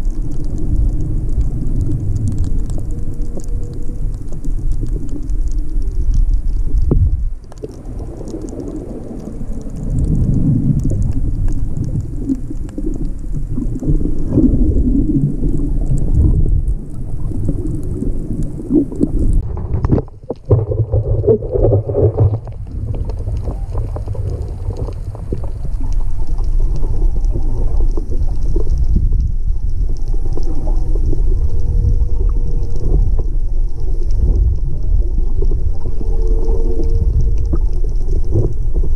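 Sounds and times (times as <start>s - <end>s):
underwater rumble of moving water: 0.0s - 38.9s
whale song moans: 30.0s - 38.8s.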